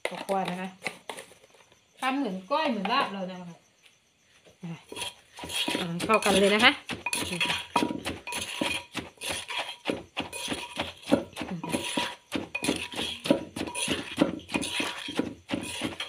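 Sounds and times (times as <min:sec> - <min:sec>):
hand knocking clay bowl: 0:05.5 - 0:16.0.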